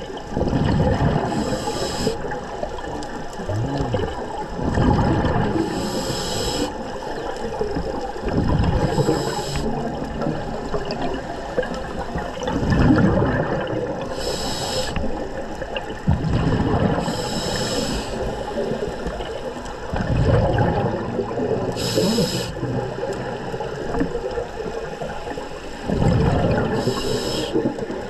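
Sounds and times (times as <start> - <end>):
exhaled bubbles gushing: 0.0 - 28.0
regulator inhalation hiss: 1.3 - 2.4, 5.7 - 6.8, 8.8 - 9.8, 14.1 - 15.1, 17.0 - 18.8, 21.7 - 22.6, 26.7 - 27.6.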